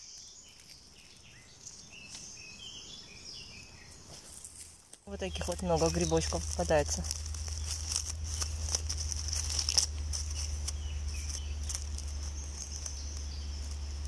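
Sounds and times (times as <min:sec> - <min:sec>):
dry leaves crackling: 0:00.0 - 0:14.0
insect chirring: 0:00.0 - 0:14.0
low hum: 0:05.1 - 0:14.0.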